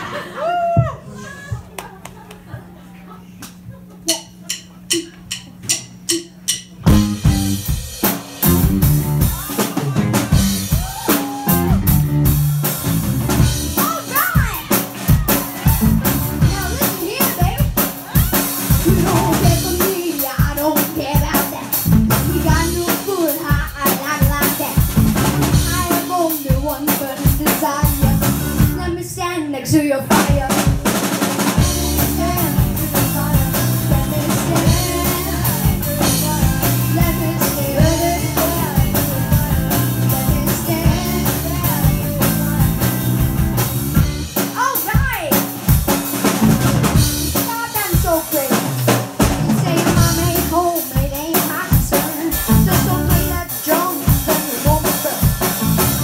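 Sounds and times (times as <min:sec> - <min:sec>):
drum kit beat: 0:03.9 - 0:29.0, 0:30.0 - 0:56.0
bass guitar: 0:04.1 - 0:29.2, 0:30.1 - 0:56.0
electric guitar: 0:30.9 - 0:44.6.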